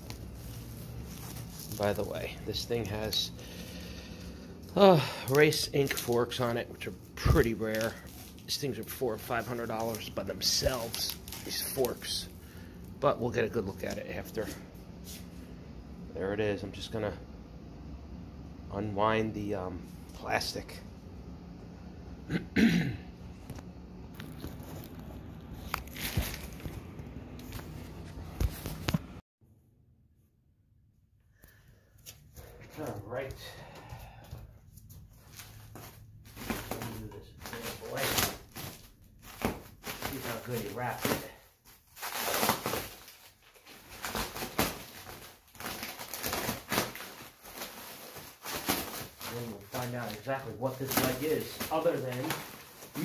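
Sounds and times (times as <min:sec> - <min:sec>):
plastic wrap crinkling: 0:00.0 - 0:14.6, 0:24.1 - 0:28.8, 0:35.1 - 0:53.0.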